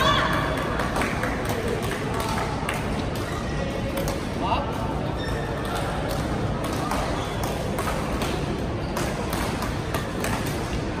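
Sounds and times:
busy sports hall din: 0:00.0 - 0:11.0
rackets striking shuttlecocks: 0:05.6 - 0:11.0.

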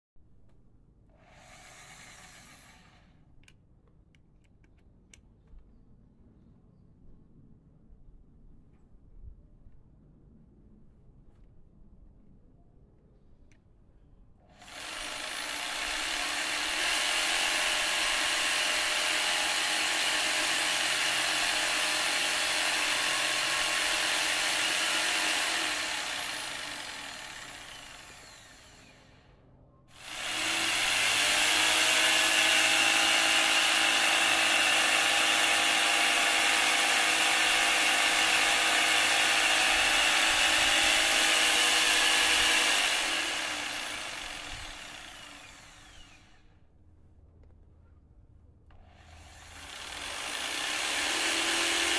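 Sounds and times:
electric jigsaw running: 0:01.2 - 0:03.1, 0:14.5 - 0:29.2, 0:29.9 - 0:46.5, 0:48.7 - 0:51.9.

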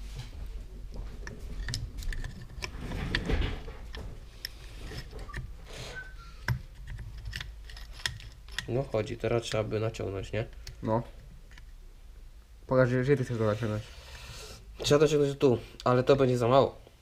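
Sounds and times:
small metal parts clicking: 0:01.6 - 0:03.3, 0:06.4 - 0:09.6.

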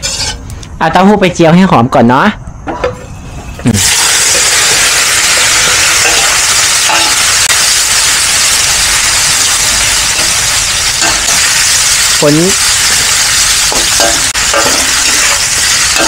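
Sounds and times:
metal spatula stirring in wok: 0:00.0 - 0:00.5
tofu sizzling in hot oil: 0:03.8 - 0:16.0.

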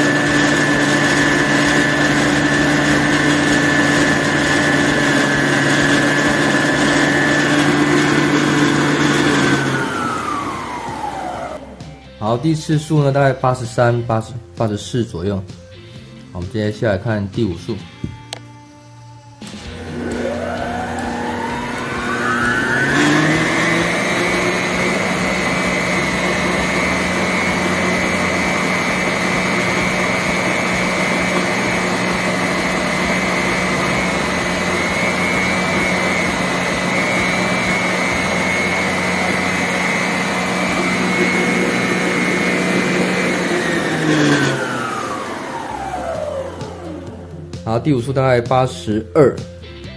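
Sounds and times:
stand mixer motor whirring: 0:00.0 - 0:11.7, 0:19.5 - 0:47.4.

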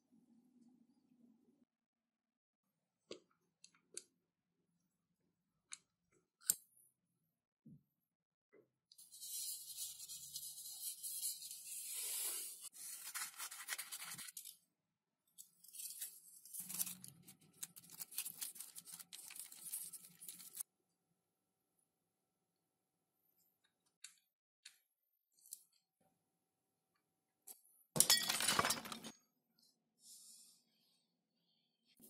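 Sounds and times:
foil tape crinkling and tearing: 0:15.7 - 0:20.6.

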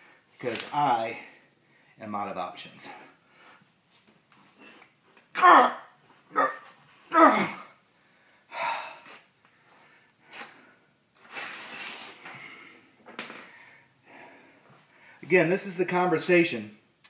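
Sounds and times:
man groaning with effort: 0:05.4 - 0:07.8
man breathing hard: 0:08.0 - 0:10.9, 0:12.3 - 0:15.2.

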